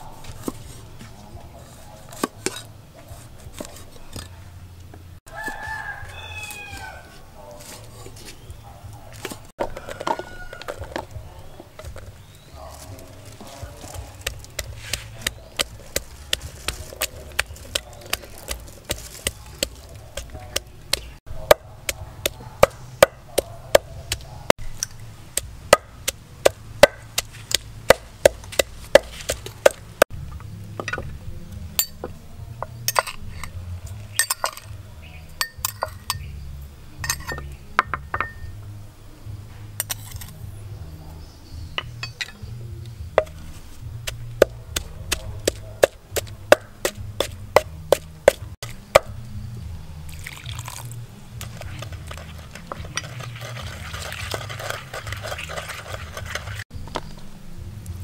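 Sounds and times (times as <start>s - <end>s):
pestle pounding in mortar: 13.9s - 24.3s, 25.4s - 30.0s, 44.0s - 49.2s, 51.4s - 56.6s.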